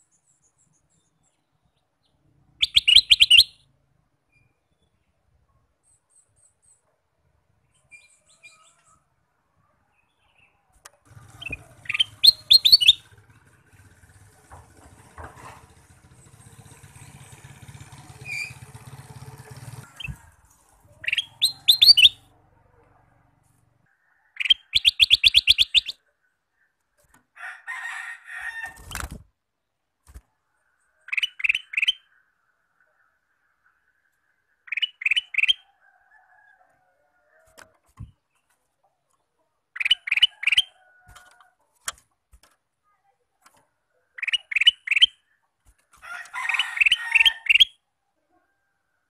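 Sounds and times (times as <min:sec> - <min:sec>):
bird singing rapid high notes: 0:02.6 - 0:03.7, 0:11.2 - 0:13.2, 0:16.1 - 0:20.2, 0:21.0 - 0:22.3, 0:24.4 - 0:26.0.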